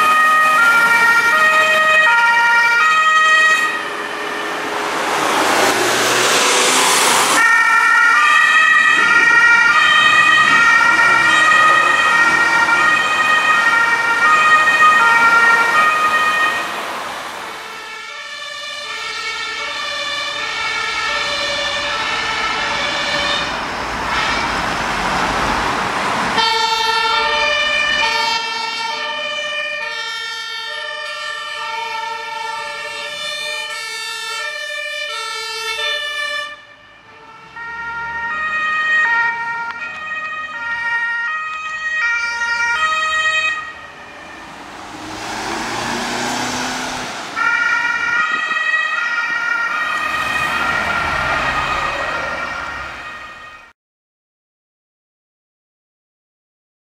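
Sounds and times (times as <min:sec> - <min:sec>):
heavy trucks driving past: 0:00.0 - 0:30.1, 0:42.3 - 0:53.5
two-tone fire engine sirens: 0:00.0 - 0:53.8.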